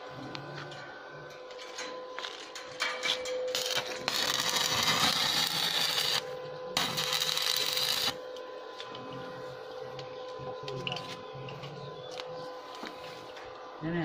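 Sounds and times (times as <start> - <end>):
arc welding hiss: 3.5 - 6.2.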